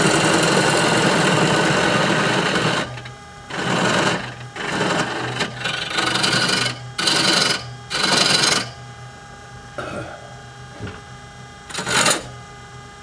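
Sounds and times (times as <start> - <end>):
lathe motor hum: 0.0 - 8.8, 11.7 - 12.4
tool cutting spinning wood: 0.0 - 8.8, 11.7 - 12.4.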